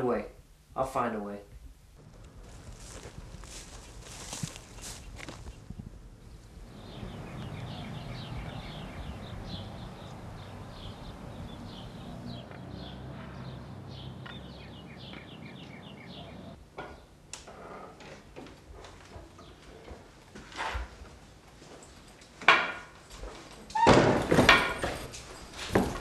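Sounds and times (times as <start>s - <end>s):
low outdoor rumble: 1.5s - 16.7s
small birds chirping: 2.1s - 17.1s.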